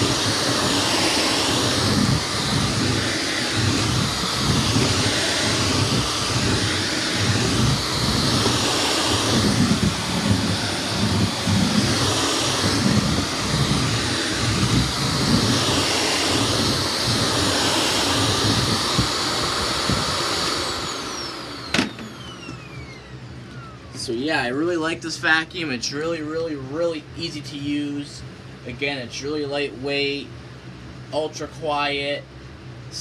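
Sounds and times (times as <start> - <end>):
motor winding down whine: 0.0 - 25.6
vacuum cleaner running: 0.0 - 33.0.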